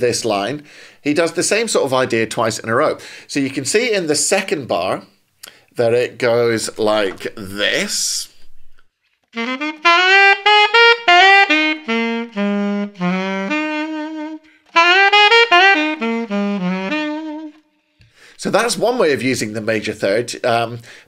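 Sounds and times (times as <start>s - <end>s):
alto saxophone playing: 9.2s - 18.0s.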